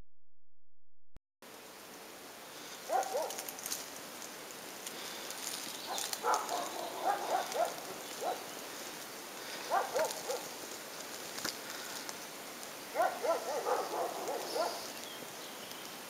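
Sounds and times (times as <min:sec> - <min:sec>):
dry leaves crackling: 0:02.5 - 0:16.0
dog barking: 0:02.9 - 0:03.5, 0:05.9 - 0:08.5, 0:09.7 - 0:10.6, 0:12.9 - 0:14.9.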